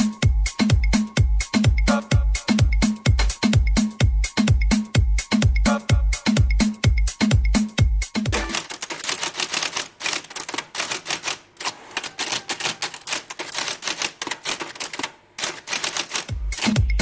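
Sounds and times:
typewriter key clacks: 8.4 - 16.8.

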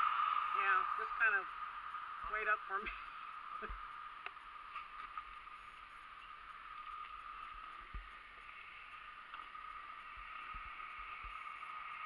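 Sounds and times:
wind thump on microphone: 7.8 - 8.2.

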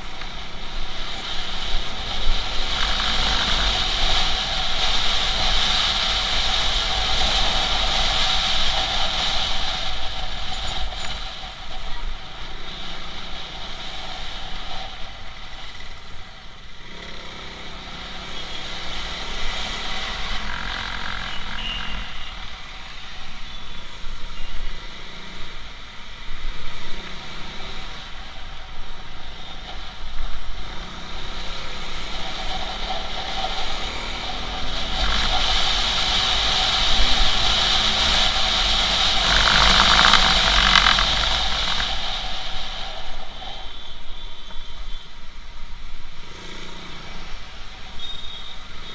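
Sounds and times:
motorcycle engine running: 0.0 - 23.8, 26.9 - 45.0
wind rush on microphone: 31.6 - 45.0.

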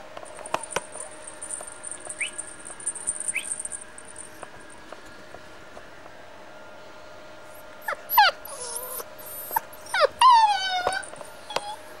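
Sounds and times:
puppy whimpering: 7.8 - 12.0.

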